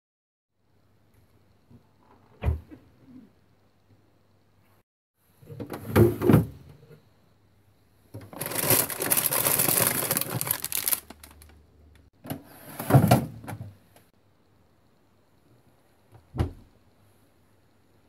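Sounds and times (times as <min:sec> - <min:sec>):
rustling: 0:08.3 - 0:11.6.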